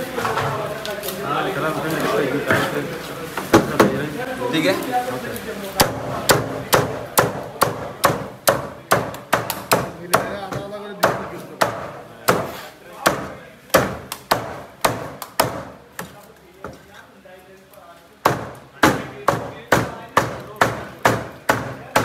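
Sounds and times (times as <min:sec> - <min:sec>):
cleaver chopping fish: 0:05.8 - 0:16.2, 0:18.2 - 0:22.0.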